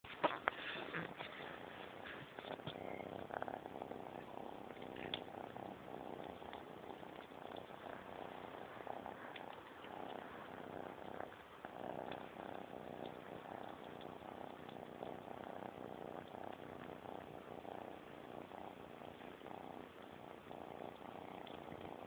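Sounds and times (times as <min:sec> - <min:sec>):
kitten purring: 0:00.0 - 0:22.0
small clicks of eating: 0:04.7 - 0:05.3, 0:06.2 - 0:08.5, 0:09.1 - 0:10.3, 0:13.0 - 0:14.9, 0:20.9 - 0:21.9.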